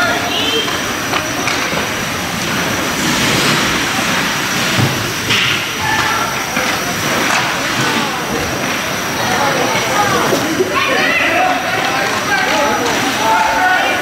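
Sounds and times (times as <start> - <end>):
spectators: 0.0 - 14.0
faint shouting voices: 5.6 - 14.0.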